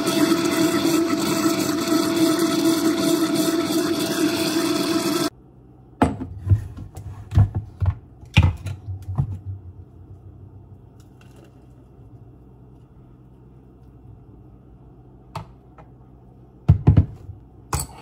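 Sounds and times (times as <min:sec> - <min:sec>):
blender running: 0:00.0 - 0:05.3.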